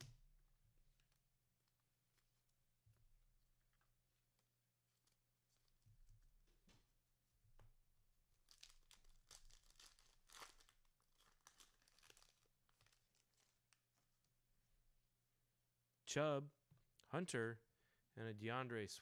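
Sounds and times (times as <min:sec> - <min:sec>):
card pack wrapper tearing: 0:08.5 - 0:13.6.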